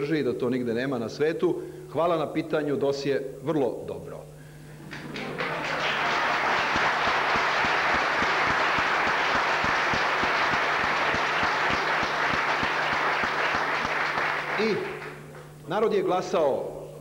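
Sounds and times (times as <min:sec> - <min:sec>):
crowd applauding: 0:04.8 - 0:15.6.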